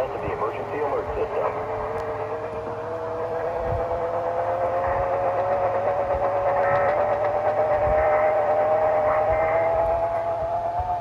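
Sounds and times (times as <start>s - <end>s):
faint radio crackle: 0.0s - 2.6s.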